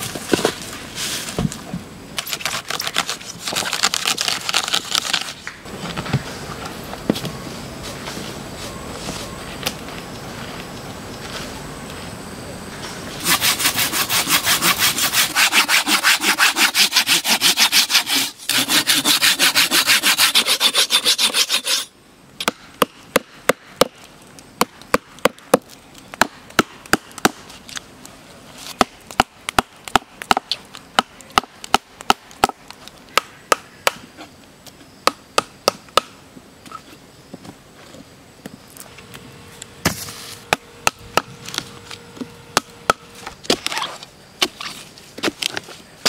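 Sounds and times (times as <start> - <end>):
hand saw cutting log: 13.2 - 21.9.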